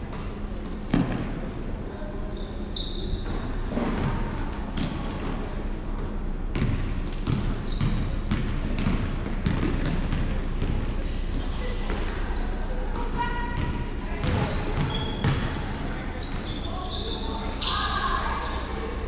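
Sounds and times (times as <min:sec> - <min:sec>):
sneakers squeaking: 0:00.0 - 0:19.0
basketball bouncing: 0:00.9 - 0:01.3, 0:06.5 - 0:10.9, 0:13.6 - 0:15.6.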